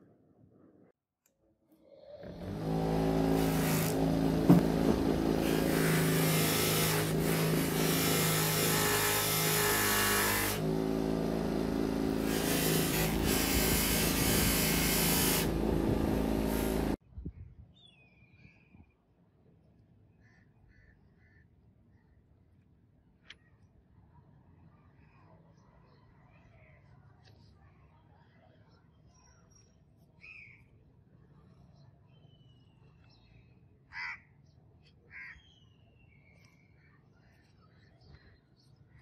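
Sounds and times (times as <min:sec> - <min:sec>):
bench grinder motor running: 0:02.2 - 0:17.0
blade hissing on buffing wheel: 0:02.4 - 0:17.0.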